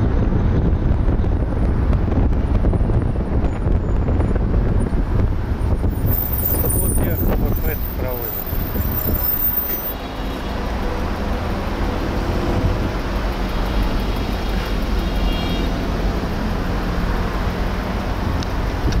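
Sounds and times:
city traffic rumble: 0.0s - 19.0s.

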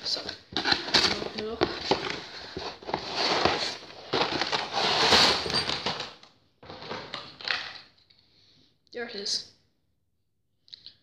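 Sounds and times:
cardboard packaging rustling: 0.0s - 7.5s.

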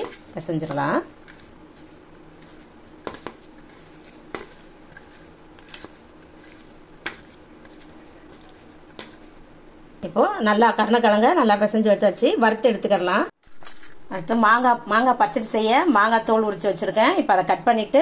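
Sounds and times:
quiet rustle in bowl: 0.0s - 9.5s.

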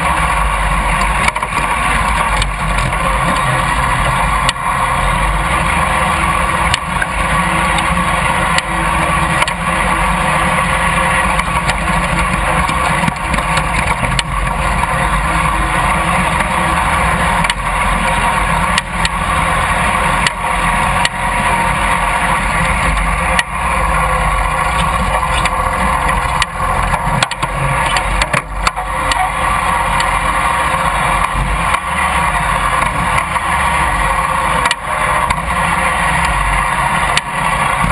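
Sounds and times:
riding lawn mower engine running: 0.0s - 37.9s
knocks and rattles: 11.2s - 15.5s.

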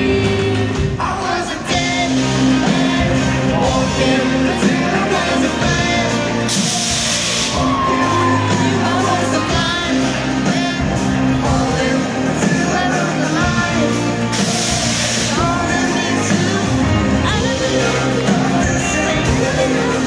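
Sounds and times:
live rock band: 0.0s - 20.0s
man singing: 0.0s - 20.0s.

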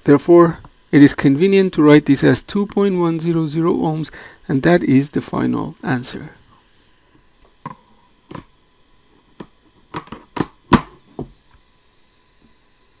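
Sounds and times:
sharp clicks and knocks: 9.4s - 11.3s.

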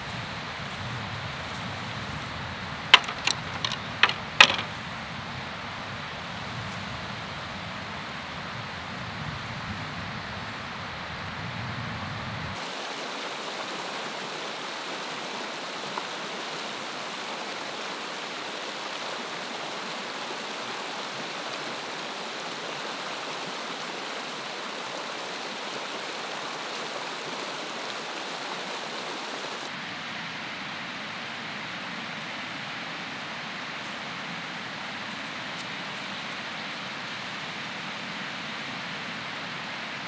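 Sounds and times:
stream rushing over rocks: 0.0s - 11.3s, 12.5s - 40.0s
low rumble of wind: 0.0s - 12.6s.

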